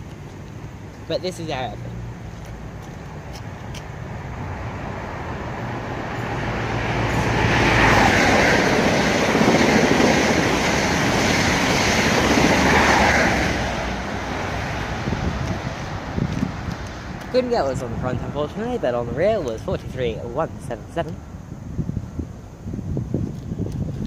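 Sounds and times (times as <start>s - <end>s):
train passing at speed: 4.0s - 19.2s.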